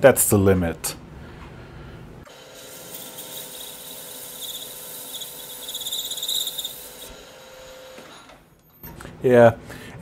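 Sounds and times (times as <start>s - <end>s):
lathe humming: 2.3s - 8.1s
lathe tool squeaking: 2.9s - 7.1s.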